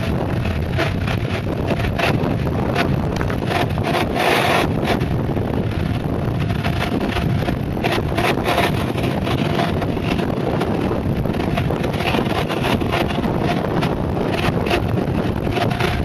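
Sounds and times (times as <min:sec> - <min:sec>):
wheels rolling on asphalt: 0:00.0 - 0:16.0
wind buffeting microphone: 0:00.0 - 0:16.0.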